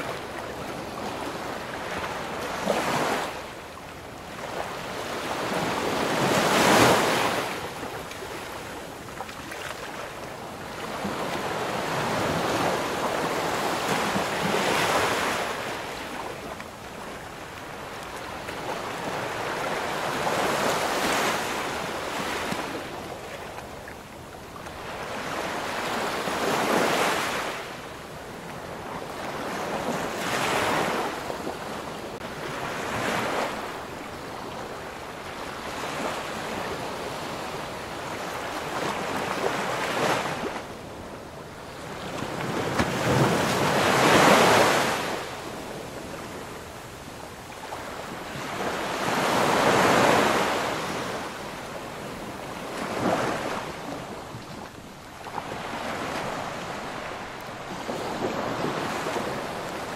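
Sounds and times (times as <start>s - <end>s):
wind: 0.0s - 59.9s
waves breaking: 47.6s - 59.9s.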